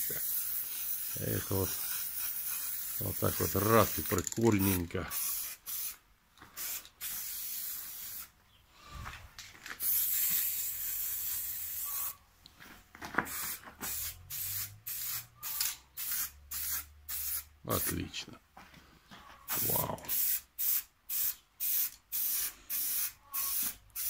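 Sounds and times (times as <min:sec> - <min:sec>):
spray-paint can hissing: 0:00.0 - 0:06.0, 0:06.6 - 0:08.3, 0:09.8 - 0:12.2, 0:13.3 - 0:17.5, 0:19.5 - 0:24.0.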